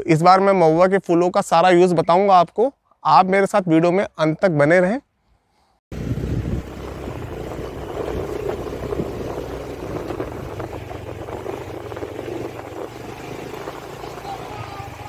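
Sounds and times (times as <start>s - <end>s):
motorbike engine running: 5.9s - 15.0s.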